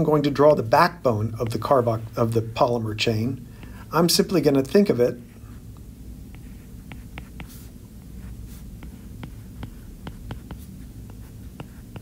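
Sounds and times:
steady low hum: 0.0 - 12.0
stylus tapping on tablet screen: 8.8 - 12.0.

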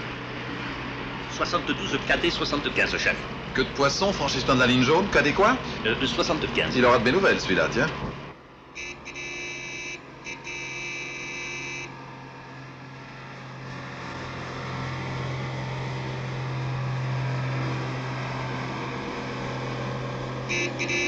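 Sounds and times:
engine drone: 0.0 - 21.0
vehicle horn blaring: 8.8 - 12.0, 20.5 - 21.0.

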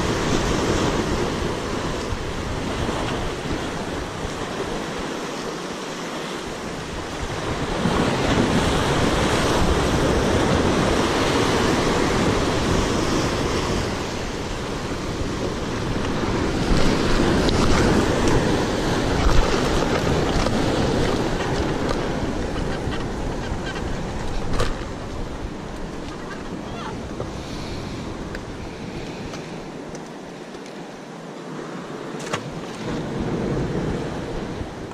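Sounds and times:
surf breaking over rocks: 0.0 - 34.9
wind buffeting microphone: 6.4 - 30.8.

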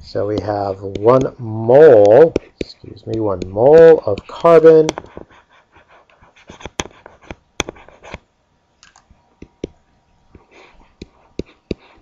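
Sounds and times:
stylus tapping on tablet screen: 0.3 - 5.3, 6.4 - 8.2, 9.4 - 12.0.

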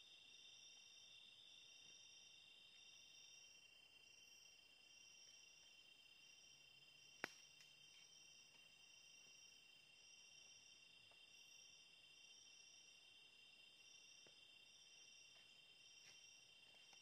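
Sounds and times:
insects chirring: 0.0 - 17.0
pulsing insect trill: 0.0 - 17.0.

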